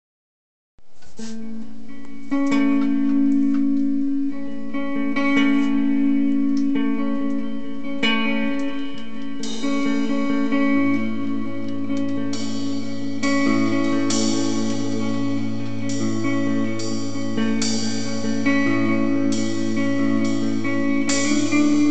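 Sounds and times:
electric guitar strumming chords: 1.2 - 21.9
drums playing: 9.4 - 21.9
low held note: 9.4 - 21.9.

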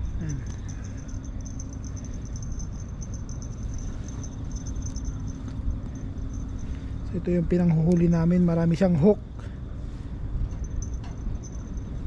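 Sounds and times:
fast high-pitched ticking: 0.0 - 5.5.

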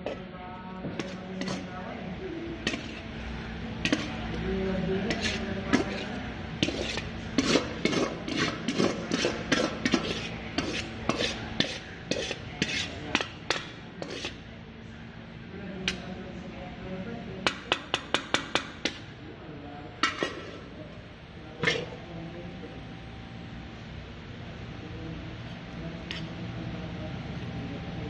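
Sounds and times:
metal spoon scraping a pan: 1.0 - 1.7, 2.6 - 3.2, 3.8 - 4.4, 5.0 - 14.5, 20.0 - 20.7, 21.6 - 22.0, 26.1 - 26.4.

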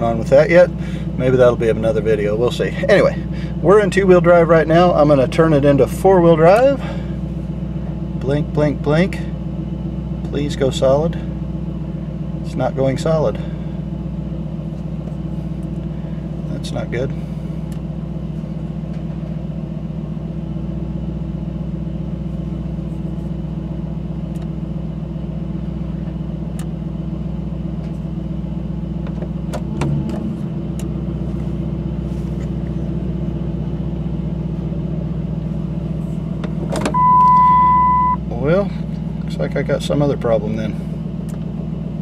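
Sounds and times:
engine idling from inside cab: 0.0 - 42.0
dashboard warning chime: 36.9 - 38.2.

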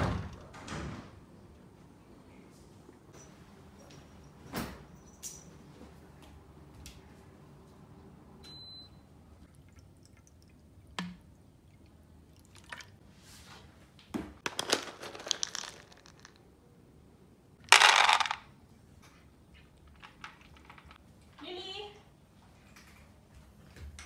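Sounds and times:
kibble clattering into plastic bowl: 14.4 - 16.3, 17.6 - 18.4
dry kibble rattling: 14.4 - 16.4, 17.6 - 18.4.

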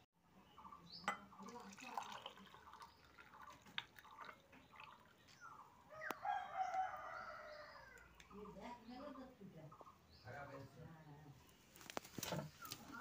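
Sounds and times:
tea trickling into a glass: 1.0 - 5.4.

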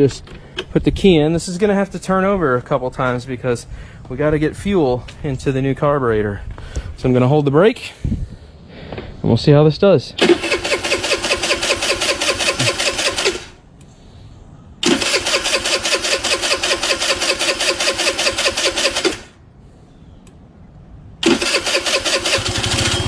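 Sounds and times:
scooter starter cranking engine: 10.2 - 13.6, 14.8 - 19.4, 21.2 - 23.0.

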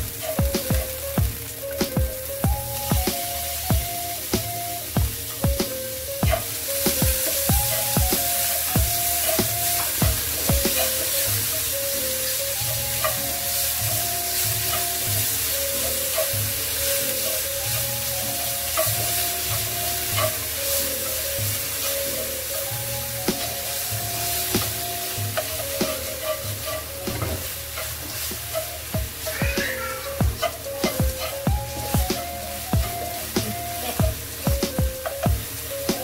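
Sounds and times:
light background music: 0.0 - 36.0
meat sizzling in a wok: 0.0 - 36.0
spatula scraping: 12.8 - 34.0.

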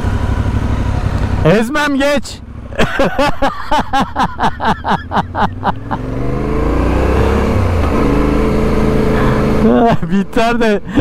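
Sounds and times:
motorcycle engine pulling away: 4.9 - 11.0.

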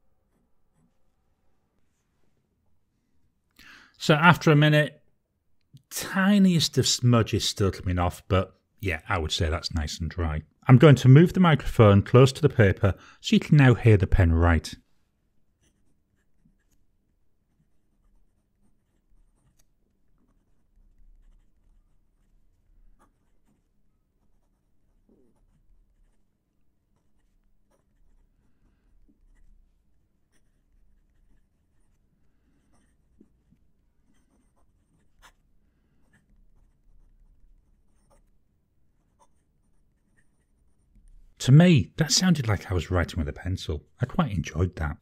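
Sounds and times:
pen nib scratching on paper: 15.5 - 41.2.

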